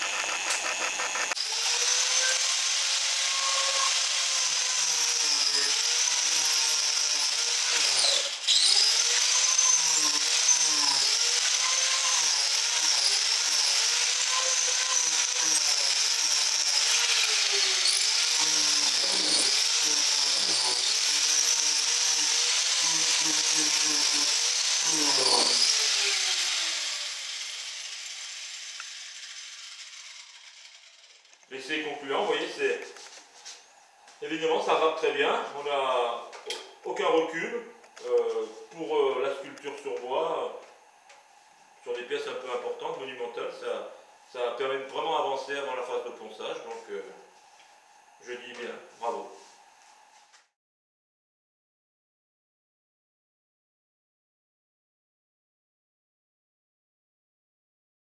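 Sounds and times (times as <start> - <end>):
angle grinder carving wood: 0.0 - 34.9.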